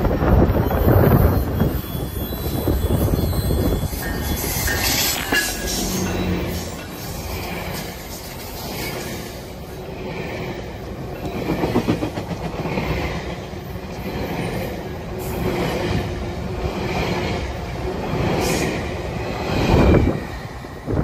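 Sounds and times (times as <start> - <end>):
train wheels clickety-clack: 4.2 - 21.0.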